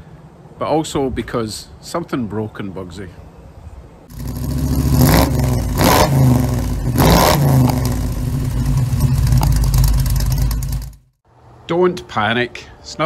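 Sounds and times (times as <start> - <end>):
engine revving: 4.1 - 11.1.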